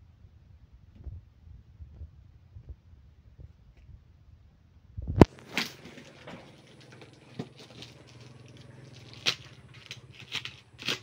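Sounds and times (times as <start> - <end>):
box cutter slitting plastic wrap: 5.3 - 11.0.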